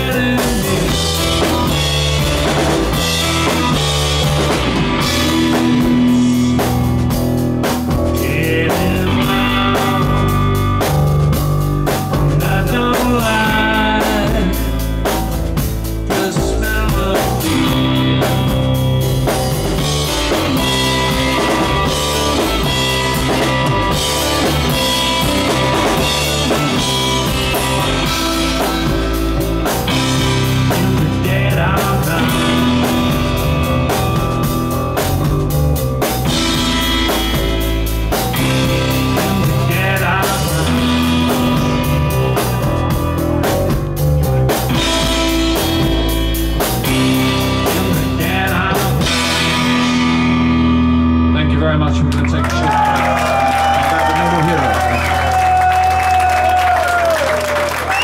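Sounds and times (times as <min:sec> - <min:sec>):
man singing into a microphone: 0:00.0 - 0:01.2, 0:08.1 - 0:10.6, 0:12.2 - 0:15.0, 0:16.0 - 0:18.8, 0:30.5 - 0:33.0, 0:39.3 - 0:41.7, 0:47.6 - 0:49.2
drum kit beat: 0:00.0 - 0:51.3, 0:52.6 - 0:58.0
electric guitar: 0:00.0 - 0:58.0.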